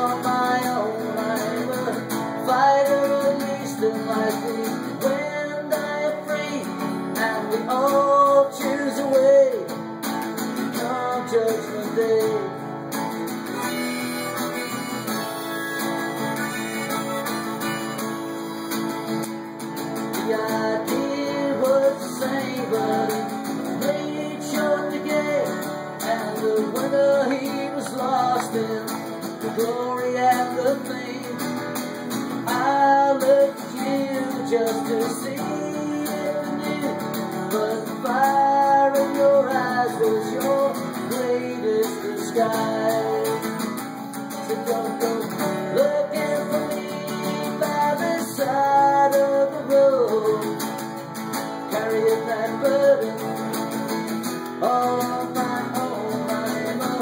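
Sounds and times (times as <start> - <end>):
strummed resonator guitar: 0.0 - 57.0
harmonica melody: 13.0 - 20.1.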